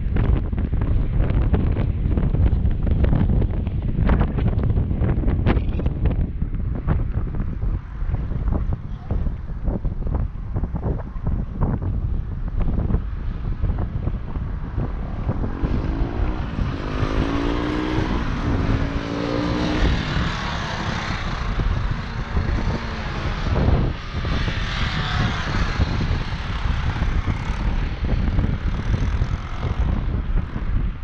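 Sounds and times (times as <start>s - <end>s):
motorcycle engines at low speed: 0.0s - 31.0s
wind rumble on microphone: 0.0s - 31.0s
motorcycle passing: 6.8s - 31.0s.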